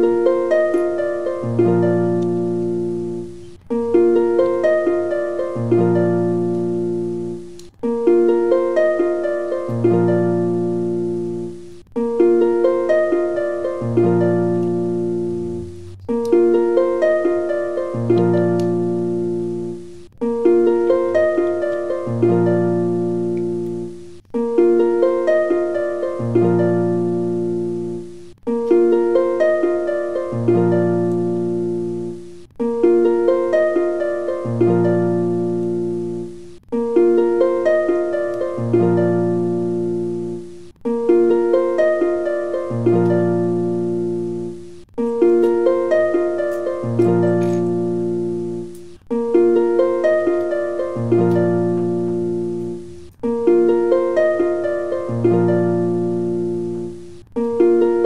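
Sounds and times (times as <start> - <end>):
harp-like plucked melody: 0.0 - 58.0.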